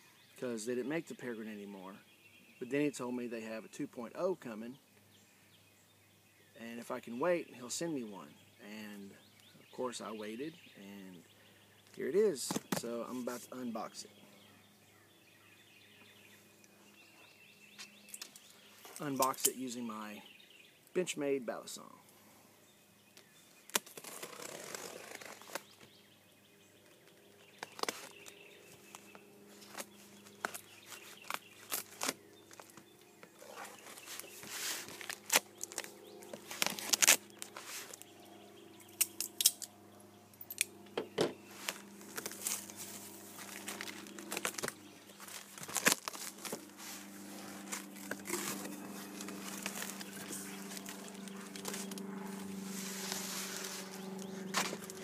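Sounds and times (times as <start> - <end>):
knife slitting packing tape: 36.5 - 38.0.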